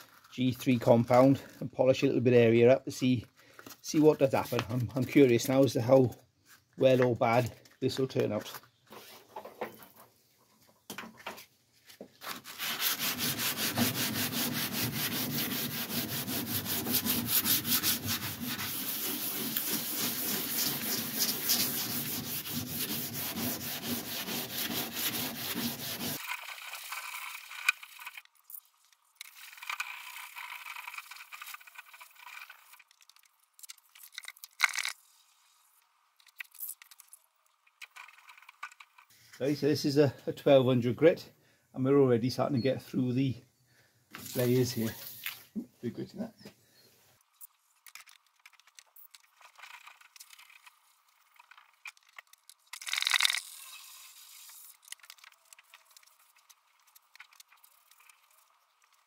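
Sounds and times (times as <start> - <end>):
wet-sanding car paint by hand: 12.2 - 26.3
sandpaper scraping: 12.2 - 28.2, 44.2 - 45.4, 52.9 - 58.5.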